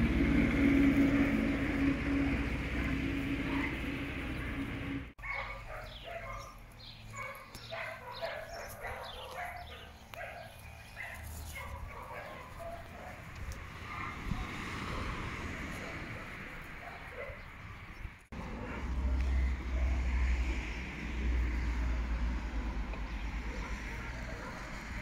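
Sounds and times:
steady low hum: 0:00.0 - 0:05.2.

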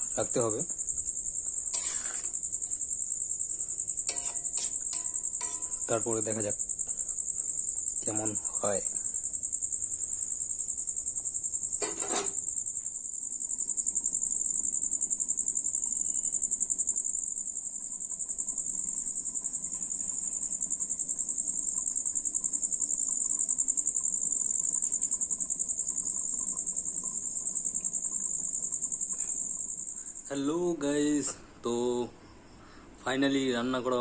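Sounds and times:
crickets trilling: 0:00.0 - 0:34.0
metal plate clank: 0:04.1 - 0:06.0, 0:11.8 - 0:12.4.

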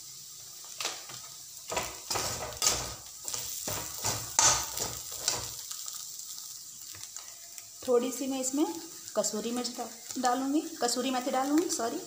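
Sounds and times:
metal spoon scraping metal pan: 0:01.7 - 0:05.6.

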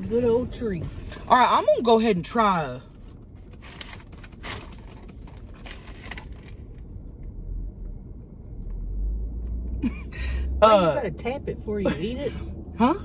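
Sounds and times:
low rumble inside car: 0:00.0 - 0:13.0.

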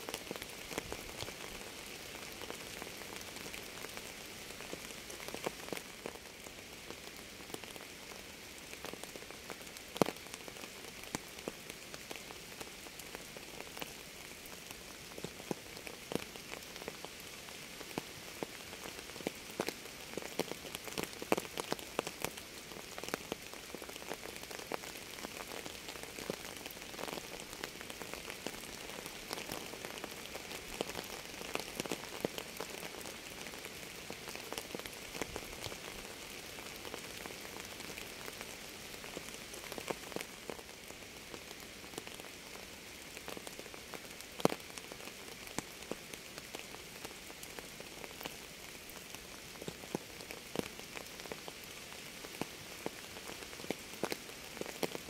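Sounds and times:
steady rain: 0:00.0 - 0:55.0
raindrops tapping on a surface: 0:52.4 - 0:55.0.

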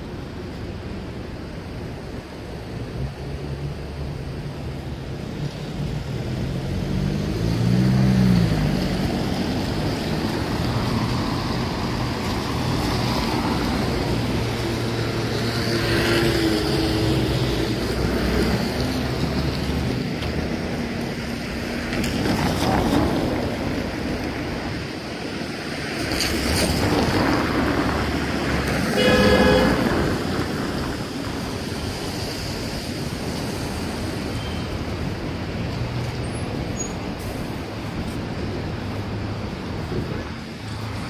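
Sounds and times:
cars passing on wet road: 0:00.0 - 0:41.0
car horn honking: 0:29.0 - 0:30.0.

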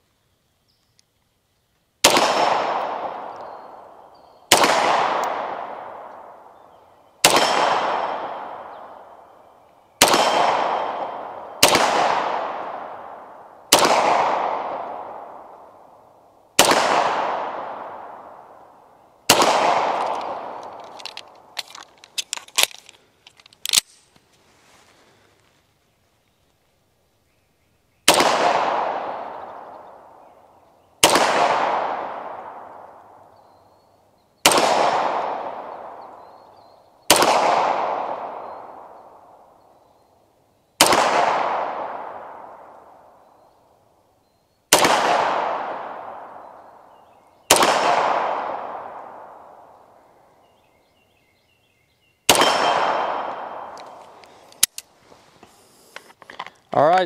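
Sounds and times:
pistol shots: 0:02.0 - 0:06.5, 0:07.2 - 0:09.1, 0:10.0 - 0:15.6, 0:16.6 - 0:18.5, 0:19.2 - 0:21.8, 0:28.1 - 0:30.1, 0:31.0 - 0:33.0, 0:34.4 - 0:36.2, 0:37.1 - 0:39.1, 0:40.8 - 0:43.0, 0:44.7 - 0:46.8, 0:47.4 - 0:50.0, 0:52.3 - 0:54.7.

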